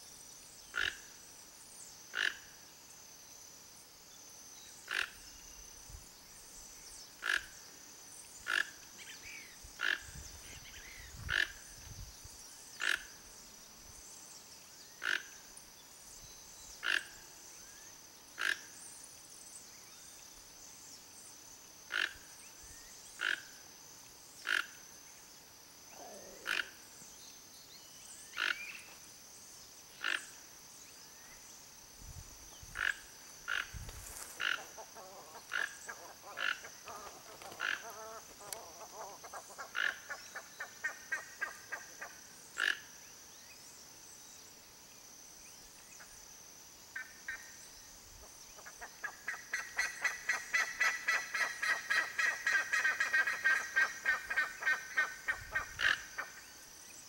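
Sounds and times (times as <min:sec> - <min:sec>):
toucan croaking calls: 0:00.7 - 0:01.2, 0:02.1 - 0:02.5, 0:04.8 - 0:05.4, 0:07.2 - 0:07.6, 0:08.4 - 0:11.8, 0:12.8 - 0:13.3, 0:15.0 - 0:15.4, 0:16.8 - 0:17.3, 0:18.4 - 0:18.8, 0:21.9 - 0:22.3, 0:23.2 - 0:23.6, 0:24.4 - 0:24.8, 0:25.9 - 0:26.9, 0:28.2 - 0:29.0, 0:29.9 - 0:30.4, 0:32.6 - 0:42.9, 0:48.5 - 0:56.5.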